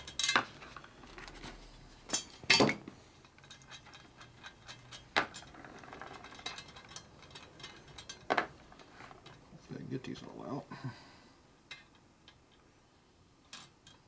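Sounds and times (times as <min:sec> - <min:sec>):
metal spokes ticking and clinking: 0:03.2 - 0:09.5, 0:11.6 - 0:12.8, 0:13.4 - 0:14.0.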